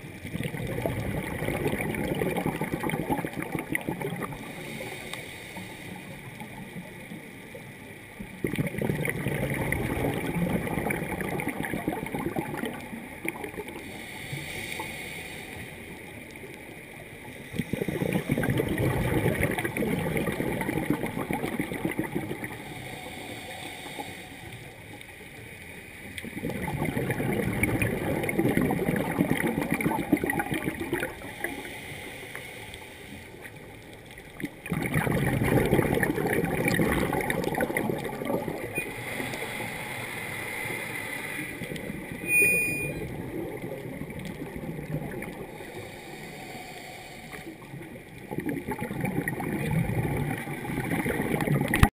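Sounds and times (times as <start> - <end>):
bubbling exhaled air underwater: 0.0 - 7.3, 8.2 - 15.0, 16.2 - 24.1, 26.2 - 31.8, 34.1 - 39.7, 41.5 - 46.6, 47.2 - 51.9
hissing regulator inhalations: 4.5 - 6.1, 13.7 - 16.0, 22.5 - 24.8, 31.2 - 33.6, 45.5 - 47.7.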